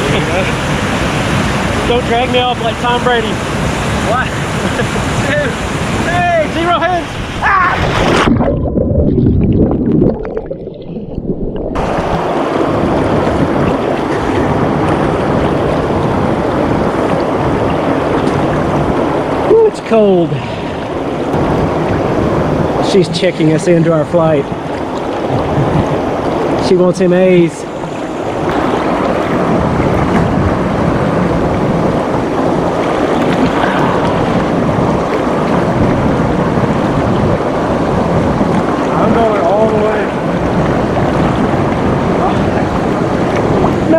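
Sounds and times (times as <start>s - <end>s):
small waterfall rushing: 0.0s - 8.3s, 32.8s - 35.6s, 38.8s - 41.0s
waterfall rushing: 0.0s - 8.5s, 11.7s - 43.9s.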